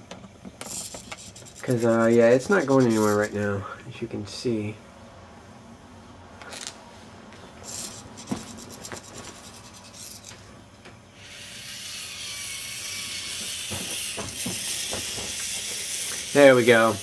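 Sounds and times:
steady hiss: 11.3s - 17.0s.

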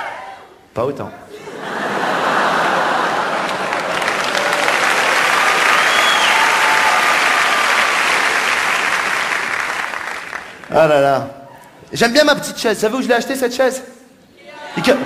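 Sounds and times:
audience applauding: 1.6s - 11.0s.

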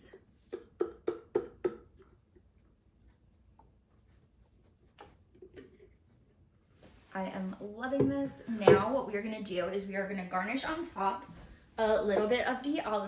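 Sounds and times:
taps on a plastic blender jar: 0.5s - 1.9s.

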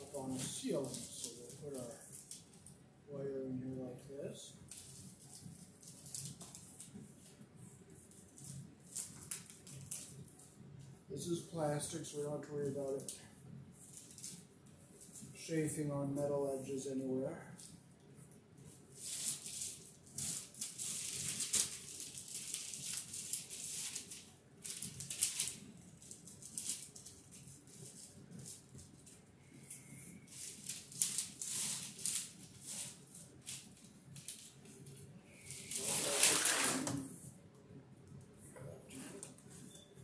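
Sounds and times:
cable scraping through plastic channel: 35.7s - 37.1s.

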